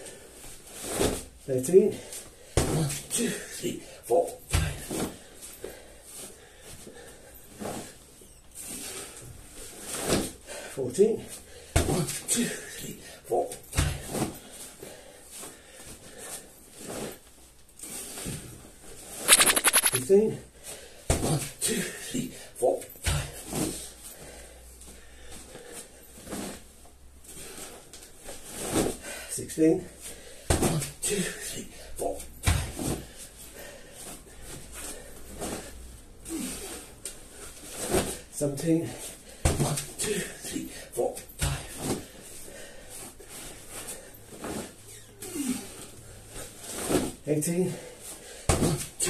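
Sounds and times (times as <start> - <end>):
man breathing heavily: 1.9 - 4.0, 4.7 - 7.6, 24.0 - 26.2, 29.0 - 32.0, 33.0 - 37.6, 38.8 - 44.3, 47.7 - 48.6.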